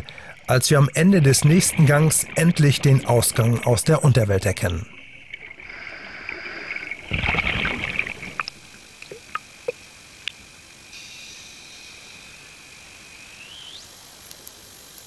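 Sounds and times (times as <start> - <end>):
exhaled bubbles gushing: 0.0 - 9.8
diver inhaling through regulator: 5.6 - 7.1
faint clicks: 14.2 - 15.0.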